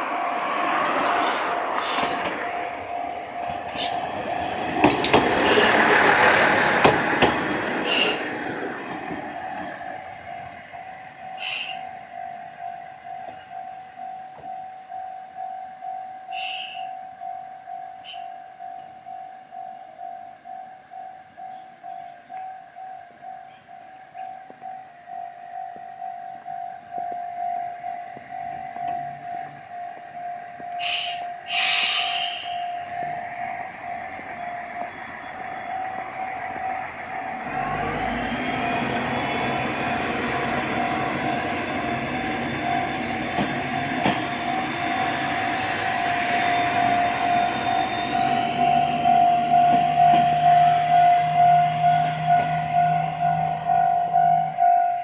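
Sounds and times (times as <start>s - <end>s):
level crossing alarm bell: 0.0s - 6.5s, 8.1s - 55.0s
diesel railcar engine: 0.0s - 55.0s
short hissing bursts: 30.8s - 32.6s.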